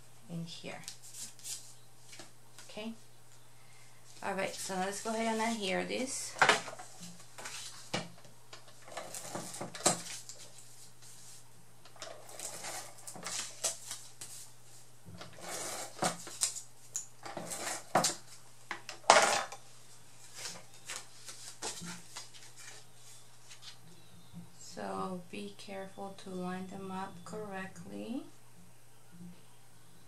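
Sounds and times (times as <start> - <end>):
paper being handled: 12.2 - 14.6, 20.2 - 23.8.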